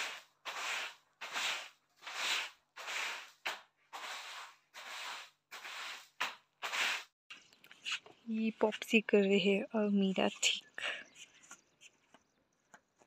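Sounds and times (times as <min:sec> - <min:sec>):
broom sweeping floor: 0:00.0 - 0:07.2.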